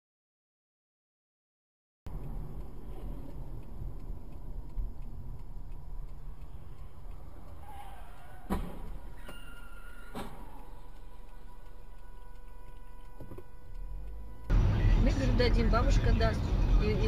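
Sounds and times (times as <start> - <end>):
faint regular ticking: 2.1 - 14.6
car engine and road rumble: 2.1 - 17.0
sharp thump: 8.5 - 8.9.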